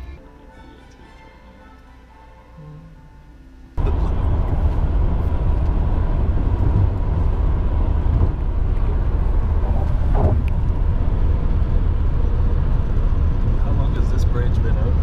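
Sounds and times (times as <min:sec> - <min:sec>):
car cabin road rumble: 0:03.8 - 0:15.0.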